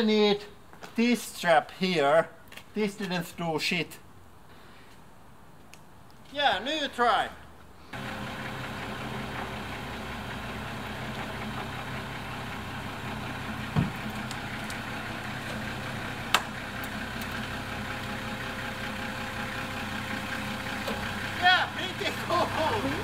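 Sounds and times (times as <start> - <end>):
engine idling: 7.9 - 23.0
low thump: 13.7 - 14.0.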